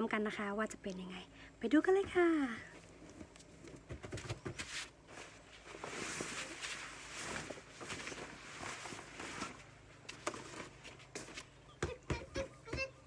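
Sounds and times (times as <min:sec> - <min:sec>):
vinyl sheet rustling and swishing: 0:04.6 - 0:11.4.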